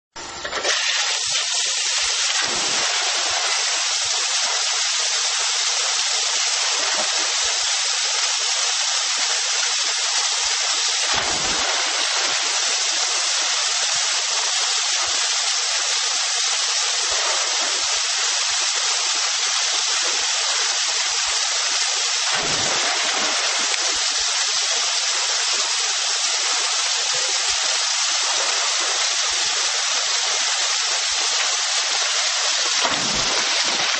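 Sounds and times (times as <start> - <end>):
water rushing and splashing: 0.7 - 33.9.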